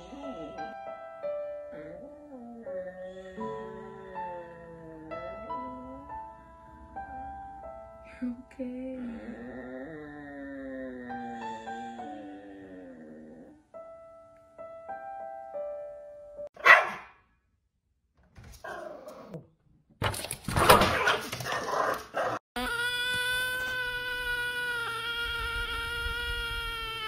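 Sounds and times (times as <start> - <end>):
soft musical notes: 0.0 - 9.9, 11.0 - 16.5
short sharp dog barks: 16.6 - 17.2.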